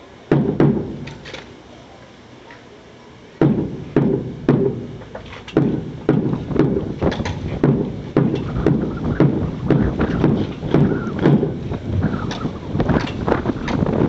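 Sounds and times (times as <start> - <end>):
boots stamping on concrete: 3.4 - 14.0.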